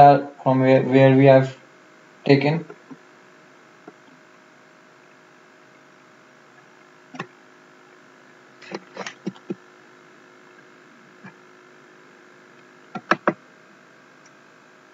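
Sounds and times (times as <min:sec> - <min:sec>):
steady electrical hum: 0:00.0 - 0:14.9
computer mouse clicks: 0:12.9 - 0:13.4.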